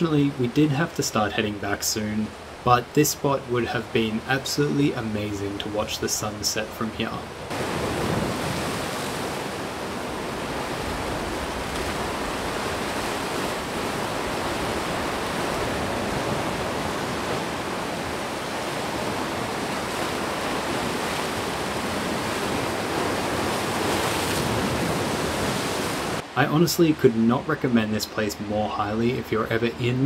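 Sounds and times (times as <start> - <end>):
surf breaking against rocks: 7.5 - 26.2.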